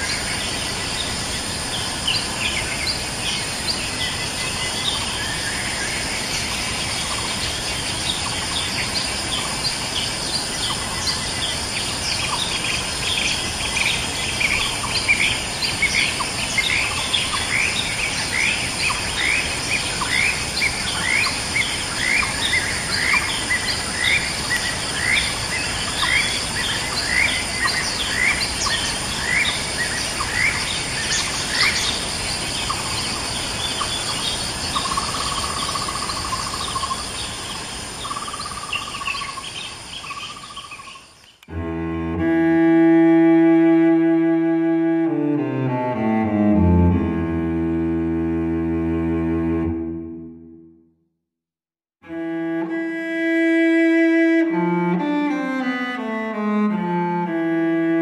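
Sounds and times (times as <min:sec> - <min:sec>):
high insect drone: 0:00.0 - 0:49.7.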